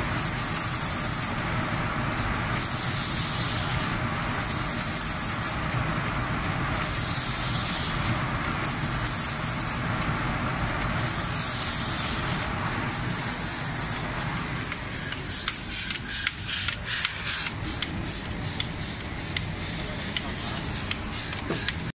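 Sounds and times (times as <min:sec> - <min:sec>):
machine low running noise: 0:00.0 - 0:21.9
paint spray guns hissing: 0:00.2 - 0:01.4, 0:02.6 - 0:03.8, 0:04.4 - 0:05.6, 0:06.8 - 0:09.8, 0:11.0 - 0:21.9.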